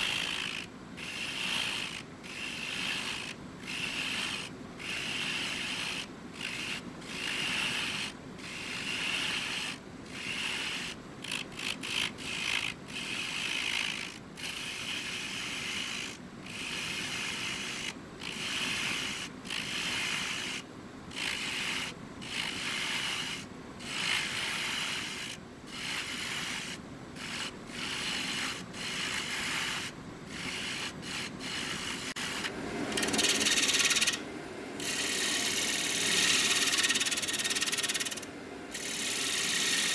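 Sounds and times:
lathe tool cutting wood: 0:30.4 - 0:34.2, 0:34.8 - 0:39.9.

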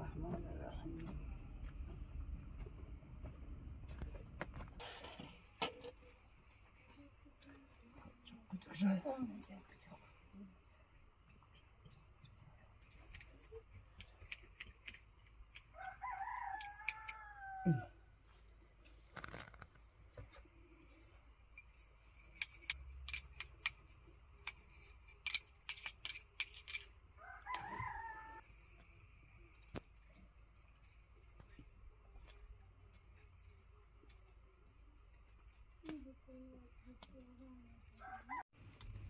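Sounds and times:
rooster crowing: 0:15.7 - 0:17.9, 0:27.2 - 0:28.4, 0:38.0 - 0:38.4.

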